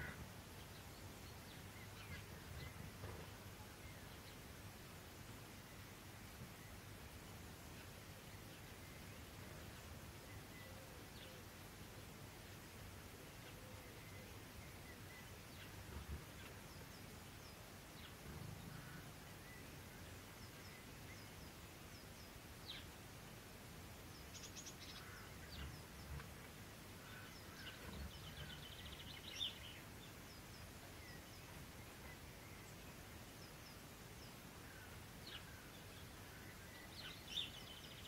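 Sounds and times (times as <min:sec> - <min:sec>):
small birds chirping: 0:07.6 - 0:38.0.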